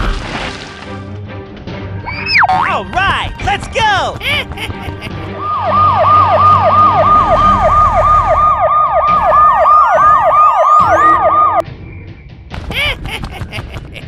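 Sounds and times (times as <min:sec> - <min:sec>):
police siren wailing: 0:05.2 - 0:11.6.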